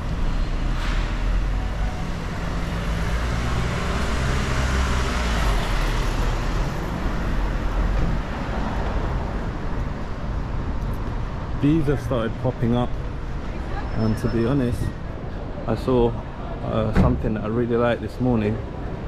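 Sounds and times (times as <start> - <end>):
vehicle passing: 0.0 - 9.5
vehicle engines humming: 0.0 - 19.0.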